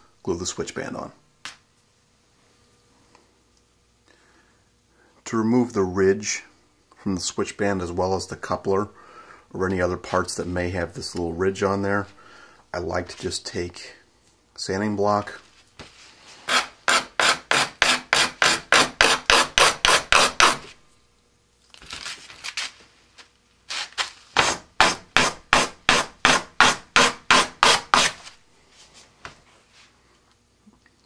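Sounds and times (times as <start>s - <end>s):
sanding block rubbing: 16.5s - 20.6s.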